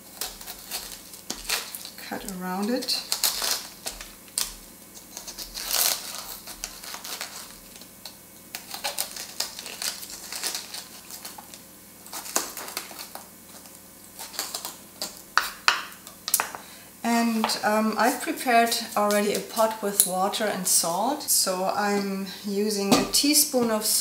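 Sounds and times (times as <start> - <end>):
knife crunching through cabbage: 0.0 - 15.2.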